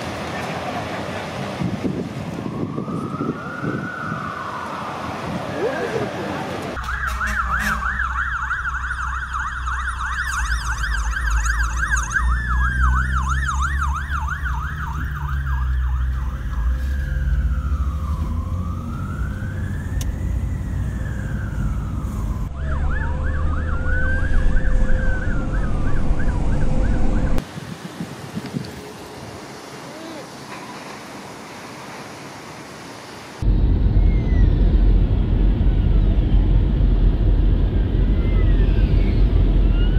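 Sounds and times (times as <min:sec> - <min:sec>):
engine and road rumble: 0:00.0 - 0:39.9
fire truck siren wail: 0:02.0 - 0:05.9, 0:06.7 - 0:27.4
fire truck siren yelp: 0:02.2 - 0:27.4.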